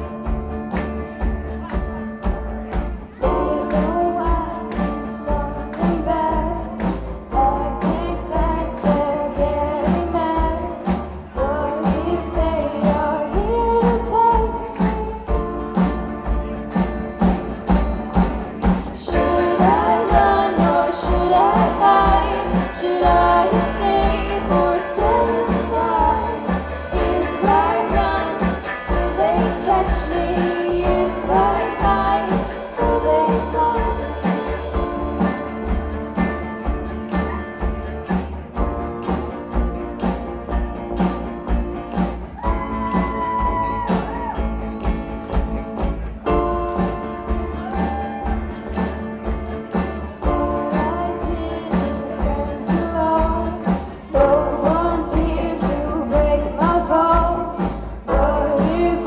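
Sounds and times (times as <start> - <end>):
steady drum beat: 0.0 - 58.9
bass guitar: 0.0 - 59.0
electric guitars: 0.0 - 59.0
keyboard: 0.0 - 59.0
girl singing lead vocal: 3.2 - 15.5, 19.0 - 34.9, 50.2 - 59.0.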